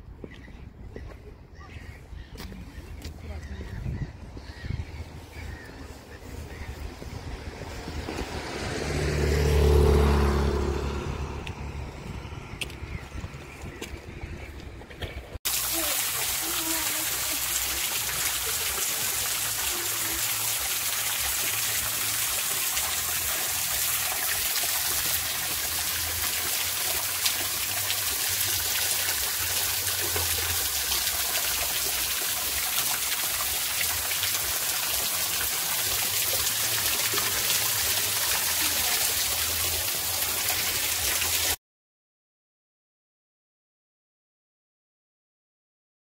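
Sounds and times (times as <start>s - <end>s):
water trickling down rock: 15.5s - 41.6s.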